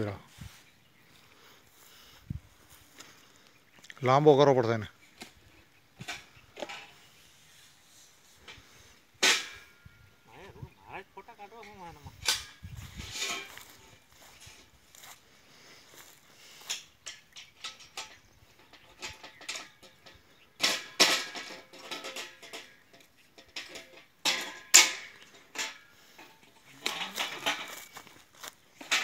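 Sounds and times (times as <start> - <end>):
steel pipe clanking on metal: 8.4 - 10.1, 11.6 - 14.7, 16.0 - 29.0.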